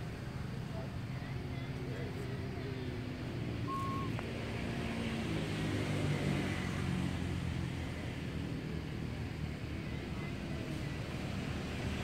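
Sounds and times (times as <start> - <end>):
vehicle engine humming: 0.0 - 12.0
brief high squeak: 3.7 - 4.2.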